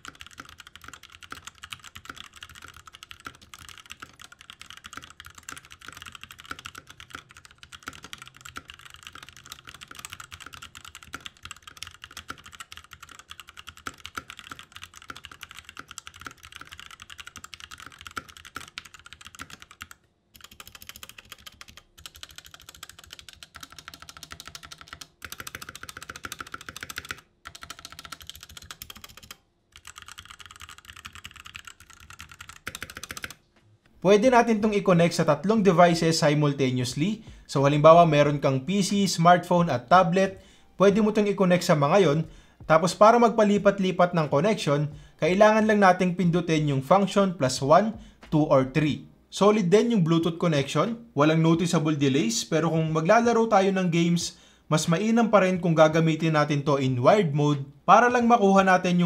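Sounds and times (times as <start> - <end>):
mechanical keyboard typing: 0.0 - 33.4.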